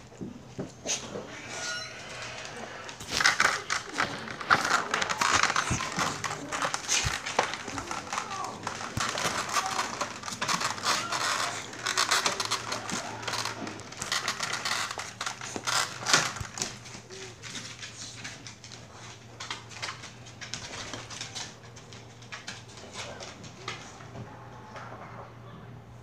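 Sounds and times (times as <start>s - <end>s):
puppy paws clicking on floor: 0.0s - 25.2s.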